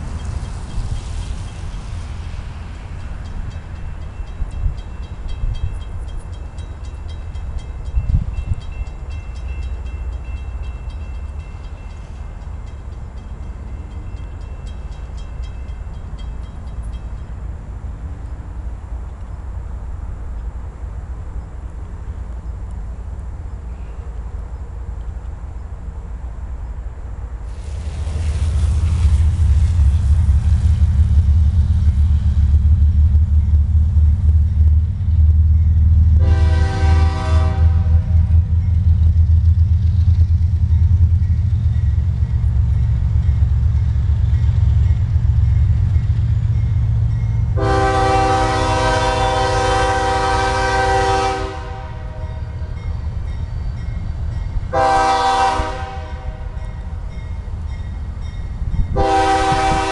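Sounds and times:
low train rumble: 0.0s - 59.9s
locomotive air horn chord: 36.2s - 38.3s, 47.6s - 52.5s, 54.7s - 56.6s, 58.9s - 59.9s.

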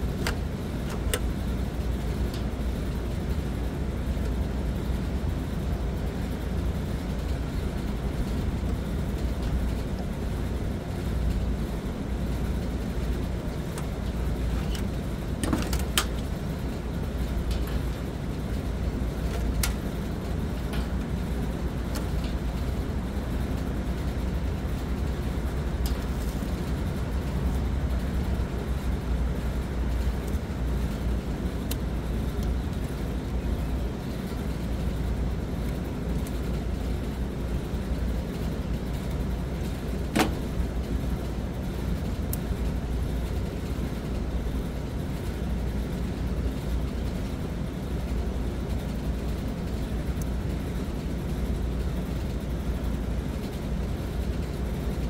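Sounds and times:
steady low rumble: 0.0s - 55.0s
clicks of wires being handled: 0.2s - 1.4s, 13.5s - 16.3s, 17.4s - 18.0s, 19.2s - 21.1s, 21.8s - 22.5s, 25.8s - 26.6s.

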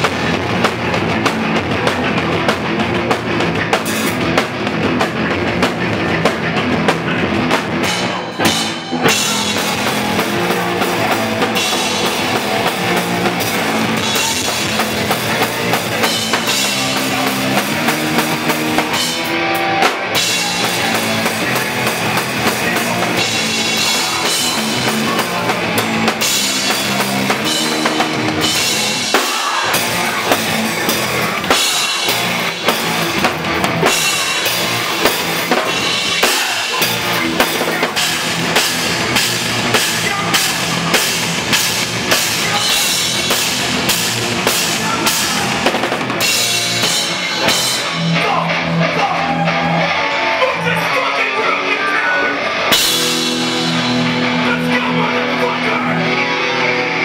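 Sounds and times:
fast drum kit: 0.0s - 49.9s, 52.7s - 56.6s
distorted electric guitars: 0.0s - 57.0s.

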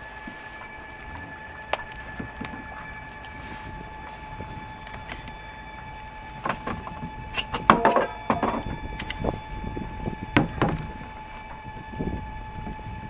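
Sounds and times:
knocks on boat deck: 10.4s - 11.0s.

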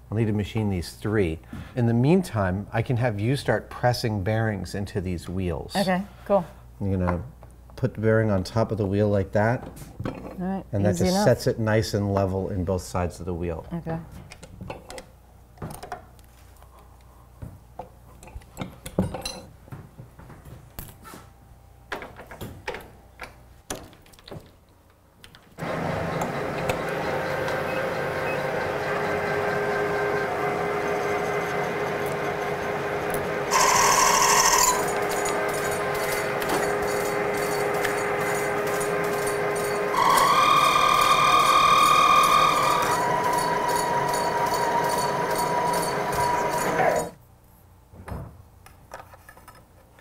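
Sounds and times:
metal lathe humming: 25.6s - 47.2s
cutting tool screeching on metal: 33.5s - 38.5s, 39.6s - 47.2s.

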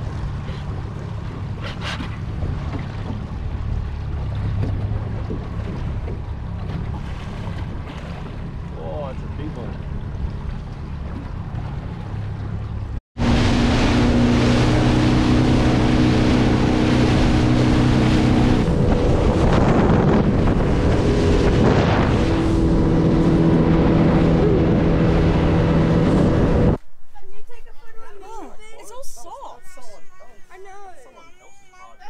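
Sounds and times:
outboard motor running: 0.0s - 26.8s
water rushing past hull: 0.0s - 26.8s
wind buffeting microphone: 14.0s - 26.8s.

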